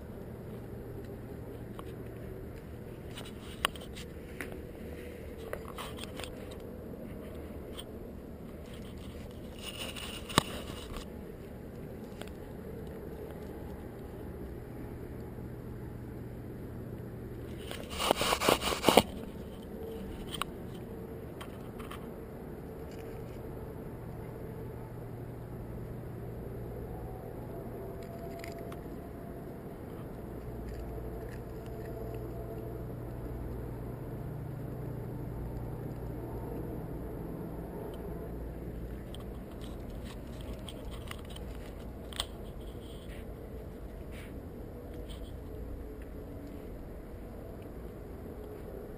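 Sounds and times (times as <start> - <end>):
puppy chewing on pebbles: 0.0 - 16.3, 27.5 - 36.8, 37.9 - 48.9
low background noise: 0.0 - 48.9.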